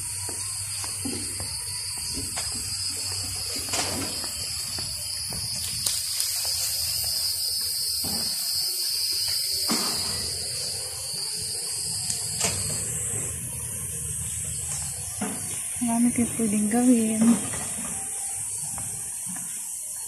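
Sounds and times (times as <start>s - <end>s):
insect chorus buzzing: 0.0s - 20.0s.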